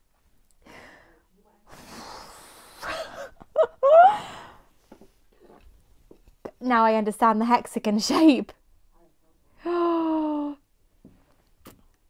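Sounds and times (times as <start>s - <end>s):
woman sighing: 0.6s - 4.7s, 9.6s - 10.6s
woman breathing shakily: 2.8s - 4.7s.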